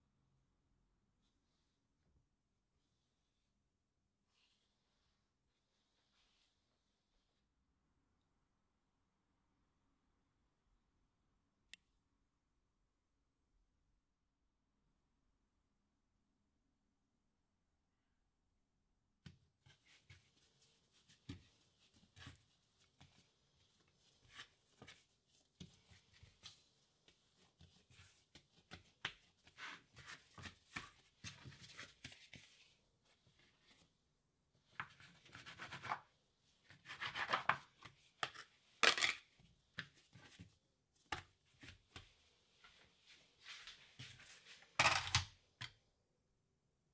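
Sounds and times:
hands kneading dough: 19.2 - 44.7.

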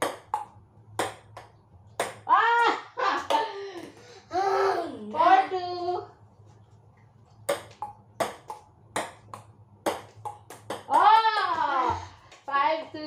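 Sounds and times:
ping-pong ball hitting paddles: 0.0 - 4.0, 7.4 - 12.1.

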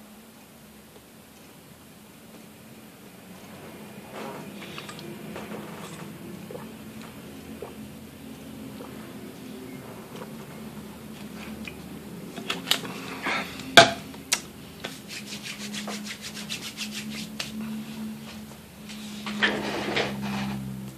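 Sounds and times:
cat lapping milk: 5.8 - 7.8.

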